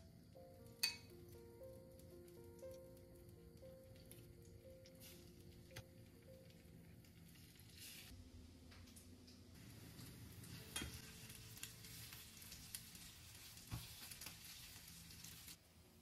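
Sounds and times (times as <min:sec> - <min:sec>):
metal tongs clicking on a pan: 0:00.8 - 0:01.2, 0:10.4 - 0:11.8
bread sizzling in a pan: 0:01.7 - 0:08.2, 0:08.9 - 0:16.0.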